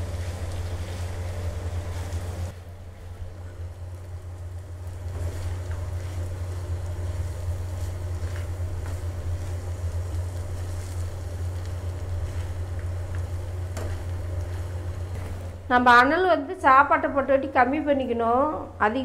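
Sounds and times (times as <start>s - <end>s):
gas burner roaring: 0.0s - 19.0s.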